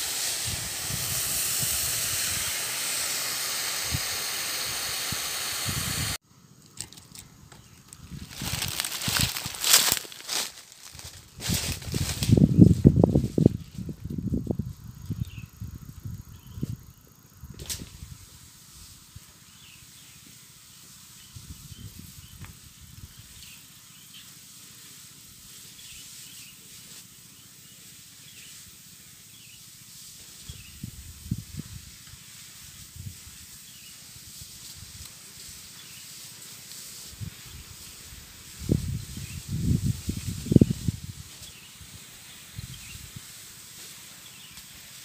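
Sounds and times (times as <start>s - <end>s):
hiss of spraying lance: 0.0s - 6.2s, 17.6s - 45.0s
wind gusts on microphone: 0.3s - 6.2s, 11.2s - 18.2s, 37.1s - 42.0s.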